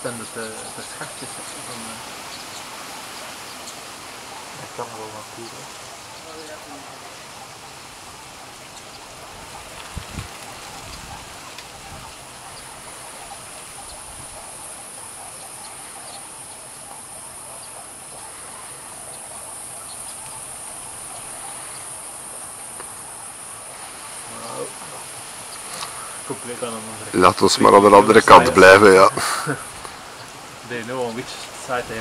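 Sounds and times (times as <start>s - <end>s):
insects droning: 0.0s - 32.0s.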